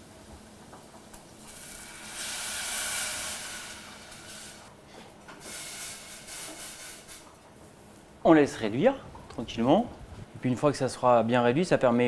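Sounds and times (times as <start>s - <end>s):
wine hissing in hot pan: 1.4s - 4.7s, 5.4s - 7.2s.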